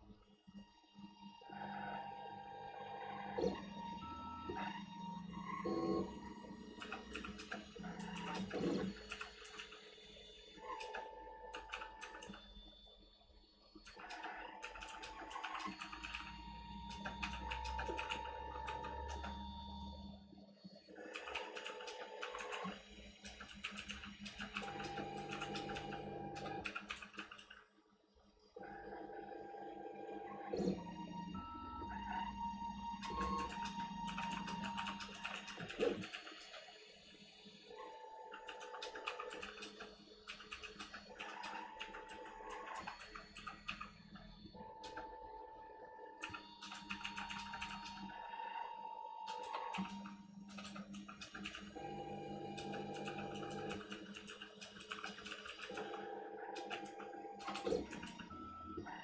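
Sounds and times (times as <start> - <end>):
rapid clicking ticks: 6.7 - 9.8, 13.8 - 19.4, 21.1 - 27.6, 33.0 - 36.7, 38.3 - 44.0, 49.3 - 51.8, 52.6 - 55.9.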